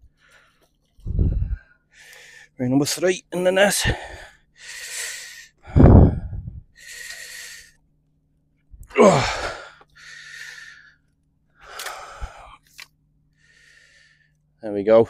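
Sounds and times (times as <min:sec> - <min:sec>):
man breathing heavily: 0:00.1 - 0:02.6, 0:03.8 - 0:07.8, 0:08.9 - 0:11.0, 0:11.6 - 0:12.6, 0:13.3 - 0:14.4
man groaning: 0:08.9 - 0:09.7.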